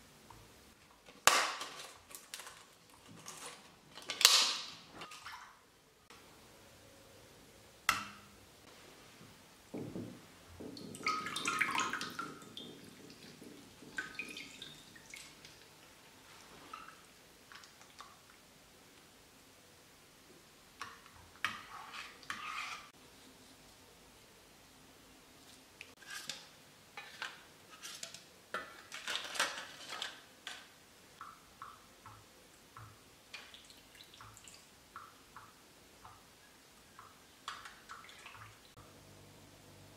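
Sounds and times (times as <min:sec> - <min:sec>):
foil cups handled: 0:00.8 - 0:05.4, 0:26.0 - 0:30.6
water splashing and dripping: 0:10.6 - 0:15.7, 0:31.2 - 0:36.2, 0:37.0 - 0:38.8
metal spoon scraping in pot: 0:21.5 - 0:22.9.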